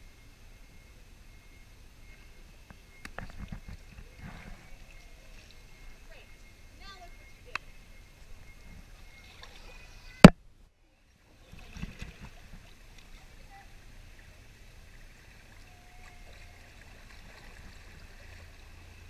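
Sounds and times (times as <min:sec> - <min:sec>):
faint steady high tone: 0:00.0 - 0:11.7, 0:12.8 - 0:19.0
water and paddling: 0:03.0 - 0:10.3, 0:11.2 - 0:19.0.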